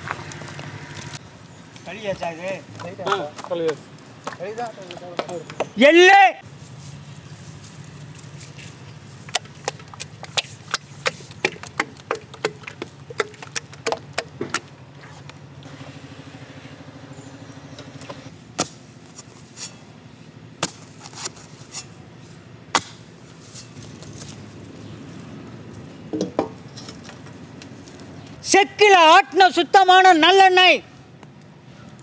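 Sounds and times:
steady low hum: 0:06.4 - 0:28.4
hoe striking soil: 0:08.5 - 0:15.4, 0:17.8 - 0:22.1, 0:22.7 - 0:24.4
batter stirred with wet slaps: 0:09.2 - 0:15.4.

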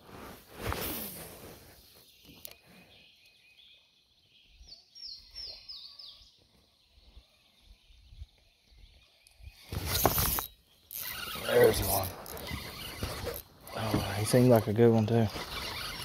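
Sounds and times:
small bird chirping: 0:01.8 - 0:16.0
handling rustle: 0:09.7 - 0:16.0.

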